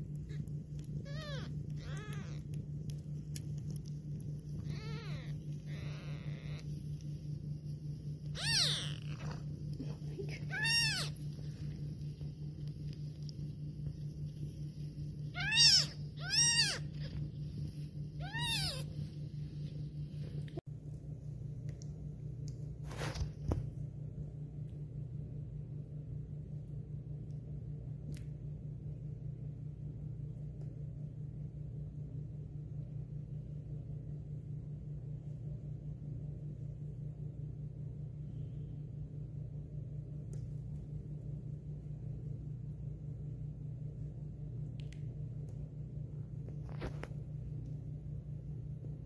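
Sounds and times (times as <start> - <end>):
steady low hum: 0.0 - 49.0
kittens mewing: 0.2 - 2.6, 4.4 - 6.8, 8.2 - 11.4, 15.3 - 17.3, 18.2 - 19.1.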